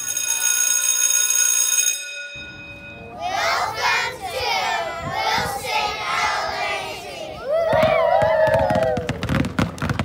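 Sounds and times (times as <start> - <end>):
young children shouting together: 3.2 - 9.0.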